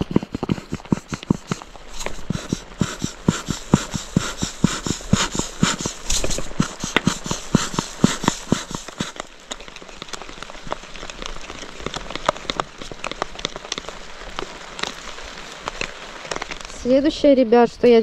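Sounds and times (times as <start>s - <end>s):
salt shaken from plastic bottle: 0.0s - 10.8s
rain drips ticking on tarp: 0.0s - 18.0s.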